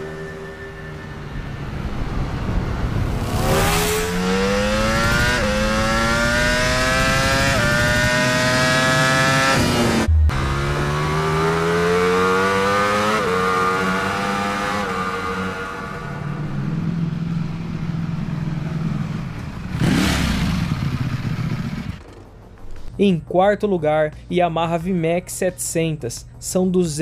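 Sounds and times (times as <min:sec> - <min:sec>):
motorcycle engine accelerating hard: 0:01.7 - 0:22.2.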